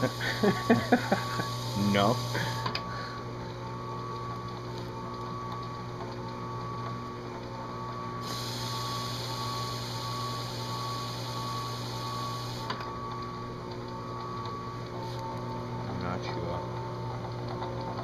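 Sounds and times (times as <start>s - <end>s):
drill press humming: 0.0s - 18.0s
hiss: 1.4s - 2.7s, 8.2s - 12.7s.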